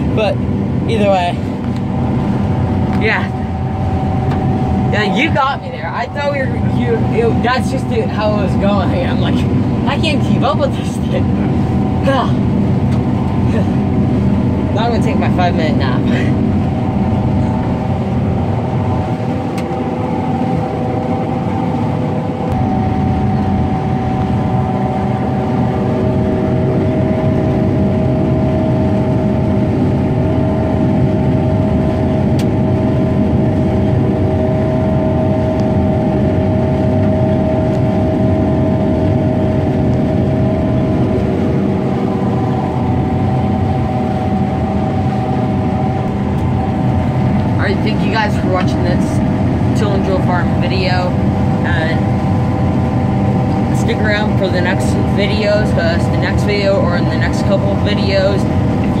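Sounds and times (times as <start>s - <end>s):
combine harvester drone: 0.0s - 59.0s
machine whining tones: 16.3s - 50.9s.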